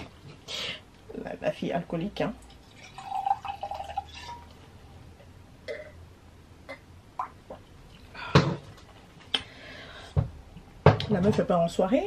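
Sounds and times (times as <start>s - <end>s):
wine pouring into a glass: 2.4s - 4.6s.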